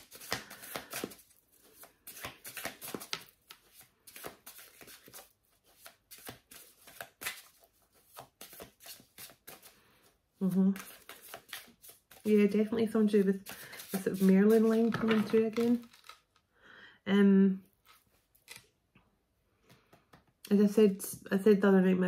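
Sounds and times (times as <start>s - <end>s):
cards being shuffled: 0.0s - 16.4s.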